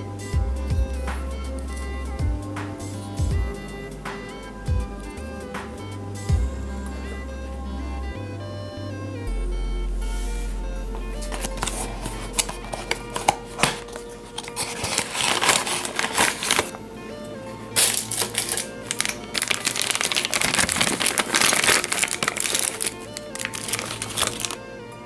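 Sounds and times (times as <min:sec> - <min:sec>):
background music: 0:00.0 - 0:25.0
cardboard box handled: 0:11.0 - 0:16.8, 0:17.8 - 0:24.6
plastic bag crinkling: 0:11.2 - 0:16.8, 0:17.8 - 0:24.6.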